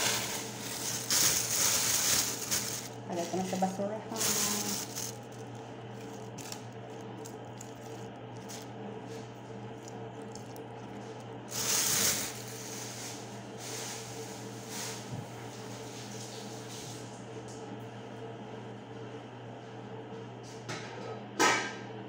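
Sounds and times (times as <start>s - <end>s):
plastic bag rustling: 0.0s - 15.0s.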